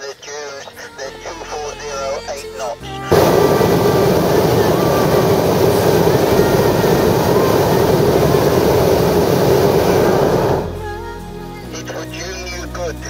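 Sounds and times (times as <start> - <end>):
propane burner roaring: 3.1 - 10.8.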